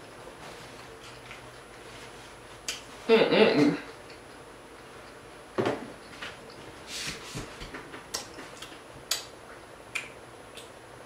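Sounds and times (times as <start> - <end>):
chewing crunchy food: 0.7 - 1.9.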